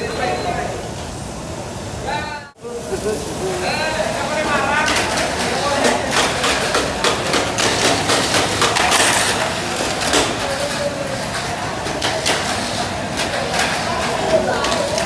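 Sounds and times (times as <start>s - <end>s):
rapid clicks and rattles: 4.8s - 15.0s.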